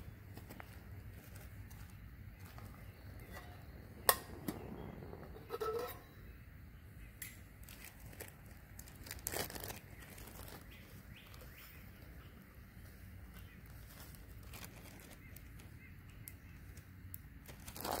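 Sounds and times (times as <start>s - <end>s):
plastic bag crinkling: 7.6s - 10.8s, 13.9s - 15.6s, 17.5s - 18.0s.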